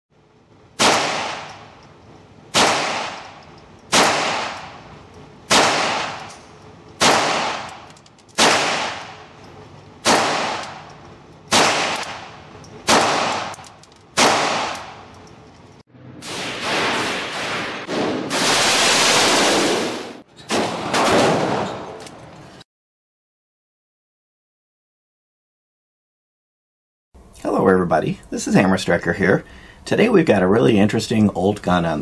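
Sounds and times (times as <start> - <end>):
pistol shots echoing: 0.8 - 1.8, 2.5 - 4.9, 5.5 - 6.3, 7.0 - 9.3, 10.0 - 10.9, 11.5 - 15.1.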